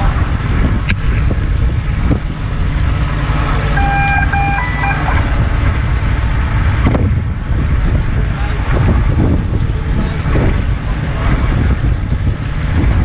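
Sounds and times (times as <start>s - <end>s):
boat engine rumble: 0.0s - 13.0s
wind on microphone: 0.0s - 13.0s
electronic beeps: 3.8s - 5.4s.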